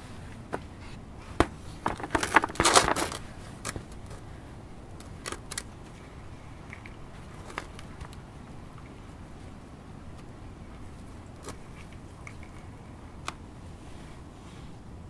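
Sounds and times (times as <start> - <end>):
gravelly potting mix rattling: 1.4 - 9.0.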